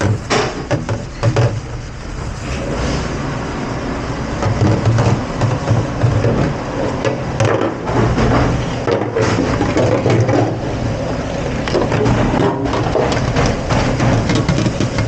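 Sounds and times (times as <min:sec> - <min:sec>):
low machine hum: 0:00.0 - 0:08.8.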